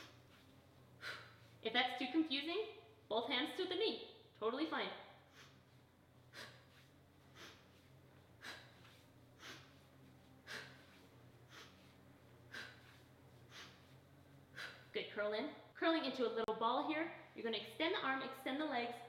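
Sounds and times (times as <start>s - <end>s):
woman breathing in short puffs: 0.0s - 1.6s, 5.2s - 14.9s
faint low hum: 0.0s - 19.0s.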